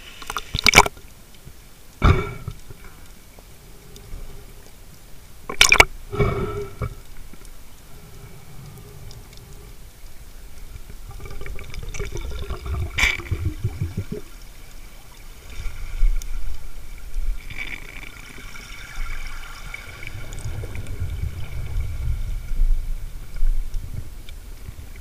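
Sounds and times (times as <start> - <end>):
underwater bubbling: 0.0 - 25.0.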